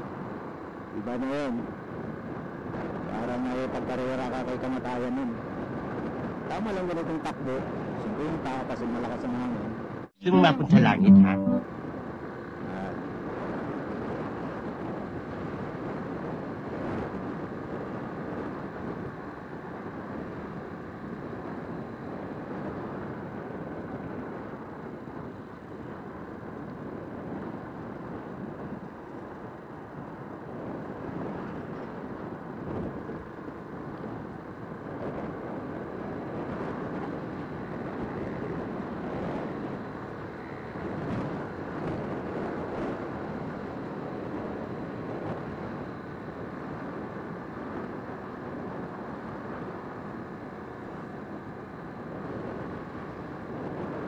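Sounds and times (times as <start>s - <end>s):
motorcycle engine and tyre rumble: 12.0s - 54.0s
wind rushing over microphone: 12.9s - 54.0s.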